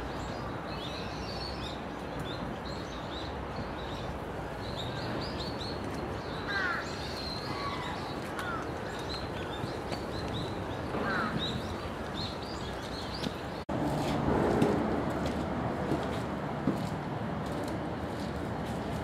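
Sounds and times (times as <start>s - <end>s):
birds chirping: 0.2s - 13.6s.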